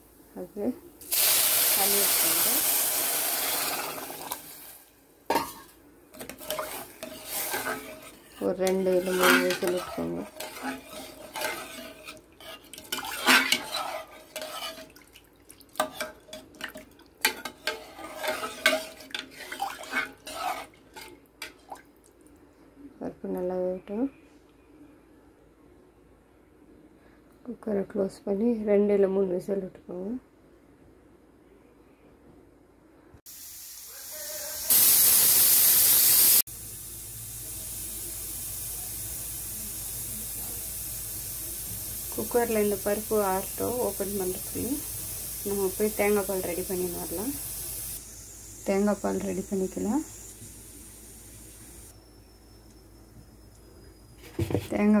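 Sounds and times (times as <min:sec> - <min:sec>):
steam hissing: 0:01.0 - 0:04.7, 0:06.4 - 0:11.9, 0:33.3 - 0:52.0
spatula scraping metal pot: 0:05.3 - 0:15.0, 0:15.8 - 0:21.8.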